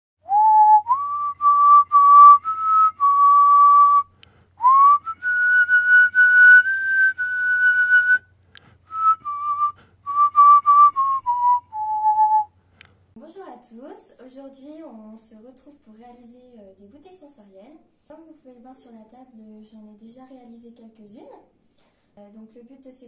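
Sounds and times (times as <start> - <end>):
person whistling a tune: 0.3 - 8.3, 8.9 - 12.5.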